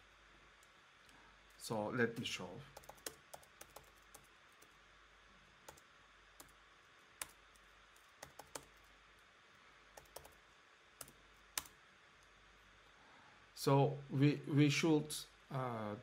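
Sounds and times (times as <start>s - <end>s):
keyboard typing: 2.8s - 4.7s, 7.2s - 8.9s, 10.0s - 10.4s.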